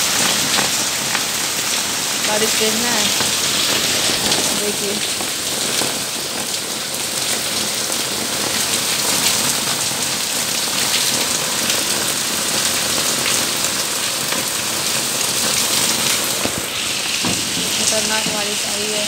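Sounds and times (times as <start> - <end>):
heavy rain on concrete: 0.0 - 19.0.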